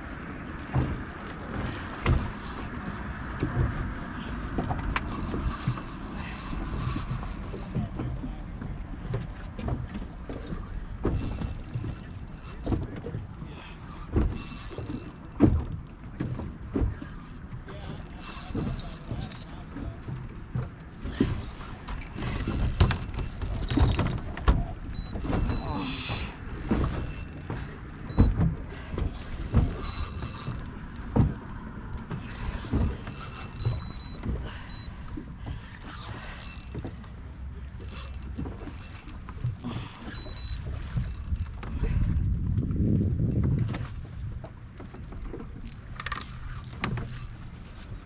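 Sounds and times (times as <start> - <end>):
fishing reel being cranked: 0.0 - 0.4, 2.1 - 4.3, 5.0 - 7.9, 10.7 - 12.7, 14.3 - 15.7, 17.2 - 20.4, 21.9 - 24.1, 25.1 - 27.6, 29.4 - 30.7, 32.3 - 34.8, 35.8 - 37.0, 37.8 - 41.8, 45.6 - 47.4.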